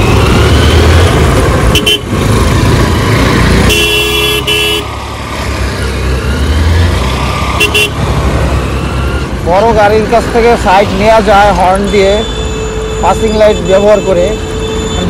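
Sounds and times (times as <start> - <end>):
road and wind noise: 0.0 - 15.0
vehicle horn: 1.7 - 2.1, 3.6 - 4.9, 7.6 - 8.0.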